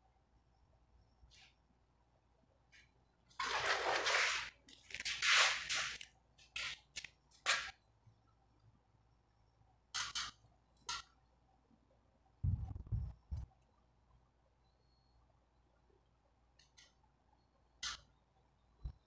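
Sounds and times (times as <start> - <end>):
scratchy rustling and scraping: 3.4 - 7.7.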